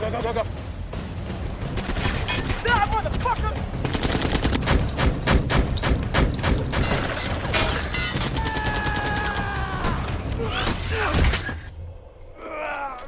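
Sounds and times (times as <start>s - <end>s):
machine-gun fire: 3.7s - 6.7s.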